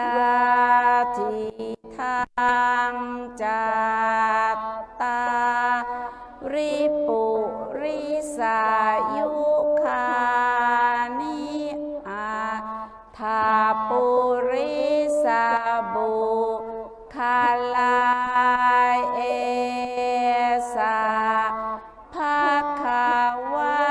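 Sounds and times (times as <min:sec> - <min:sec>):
voices singing a mantra: 0:00.0 - 0:23.9.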